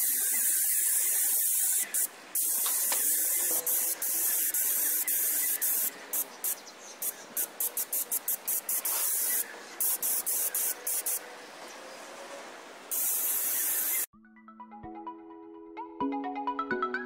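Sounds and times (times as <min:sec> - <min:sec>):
pressure washer water jet hissing: 0:00.0 - 0:11.2, 0:12.9 - 0:14.1.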